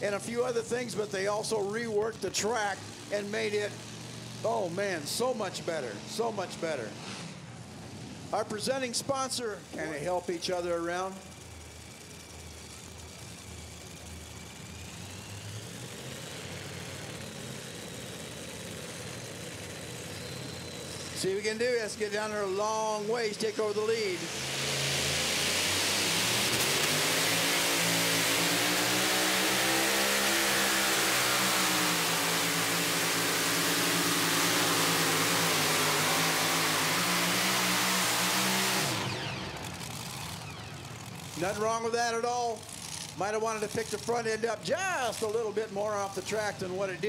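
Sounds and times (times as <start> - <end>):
truck engine idling: 0.0 - 6.3, 7.7 - 27.1, 38.8 - 47.0.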